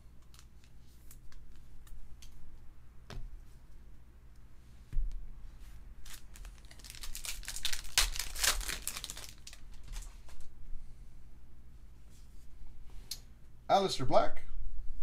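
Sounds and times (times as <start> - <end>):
foil pack tearing and crinkling: 6.0 - 10.5.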